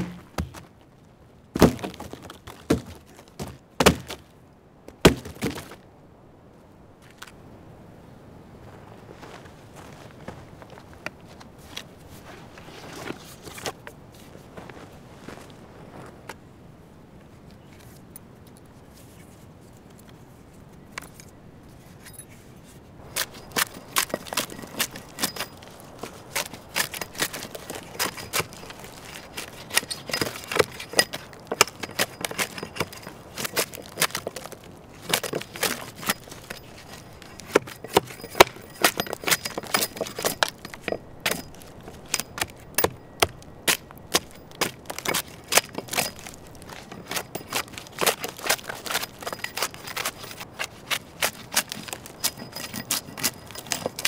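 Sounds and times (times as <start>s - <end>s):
axe chopping log: 0.0s - 0.6s, 1.6s - 4.2s, 5.0s - 5.8s.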